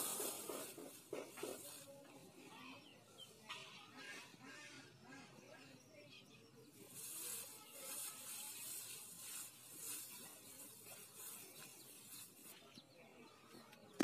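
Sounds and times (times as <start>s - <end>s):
faint rustling hiss: 0.0s - 2.6s, 6.7s - 13.3s.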